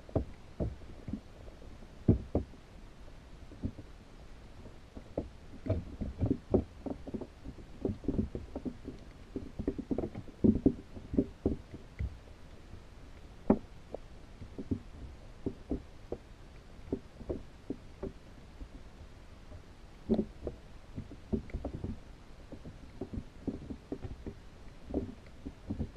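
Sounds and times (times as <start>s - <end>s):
muffled underwater knocks: 0.0s - 1.3s, 2.1s - 2.6s, 5.0s - 12.2s, 13.4s - 18.2s, 19.5s - 25.9s.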